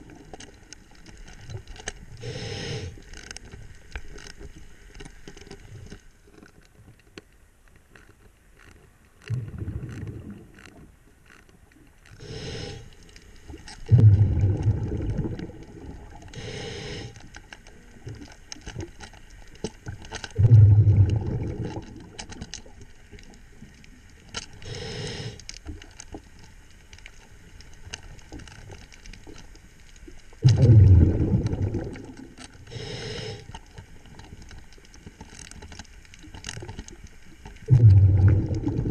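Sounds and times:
regulator inhalation hisses: 2.2 - 3.0, 12.2 - 13.1, 16.3 - 17.2, 24.6 - 25.4, 32.7 - 33.6
bubbling exhalation rumbles: 9.3 - 10.6, 13.9 - 16.6, 20.4 - 22.2, 30.4 - 33.3, 37.7 - 38.9.

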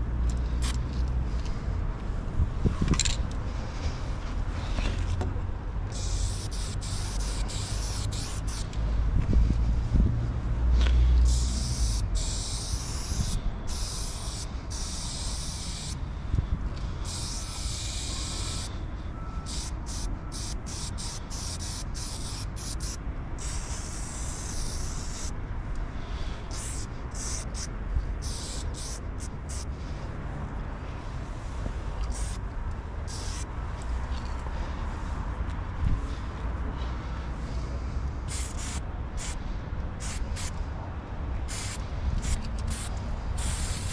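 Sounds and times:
spray can hissing: 5.9 - 8.7, 11.3 - 16.0, 17.0 - 18.7, 19.5 - 25.3, 26.5 - 29.6, 32.1 - 32.4, 33.1 - 33.5, 38.3 - 39.4, 40.0 - 40.5, 41.5 - 43.9.

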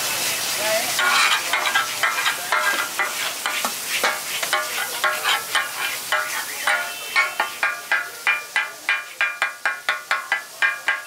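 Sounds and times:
food sizzling in oil: 0.0 - 11.0
metal spatula striking griddle: 1.0 - 11.0.

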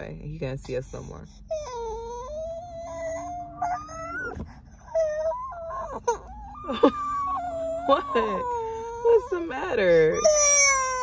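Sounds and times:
baby crying: 1.6 - 9.2, 9.8 - 11.0.

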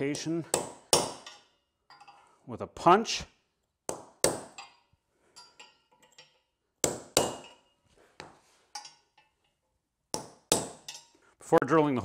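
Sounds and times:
hammer striking metal punch: 0.1 - 1.5, 3.9 - 4.7, 6.8 - 7.6, 10.1 - 11.0
faint metal taps and clinks: 1.2 - 2.4, 4.6 - 6.6, 8.7 - 9.7.

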